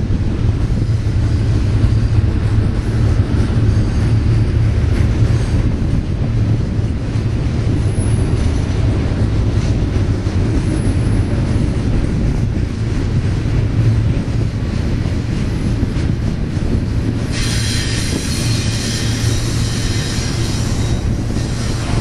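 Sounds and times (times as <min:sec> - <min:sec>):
train wheels rumbling on rail: 0:00.0 - 0:22.0
faint high wheel squeals: 0:17.3 - 0:22.0.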